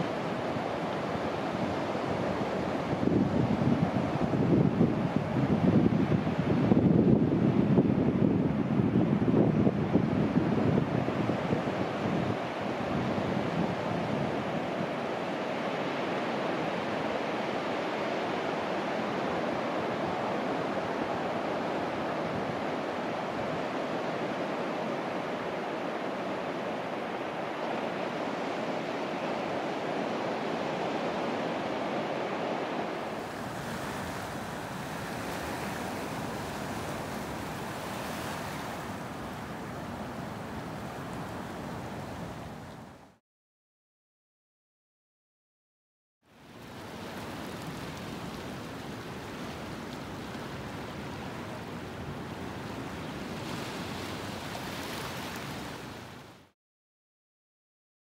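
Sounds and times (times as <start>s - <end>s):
wind on microphone: 0.0s - 17.2s, 18.3s - 43.2s.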